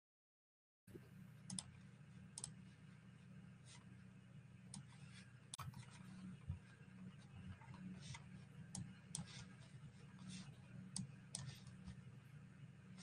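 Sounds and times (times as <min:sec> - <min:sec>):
low steady hum: 0:00.9 - 0:13.0
faint irregular clicks: 0:01.5 - 0:01.7, 0:02.3 - 0:02.6.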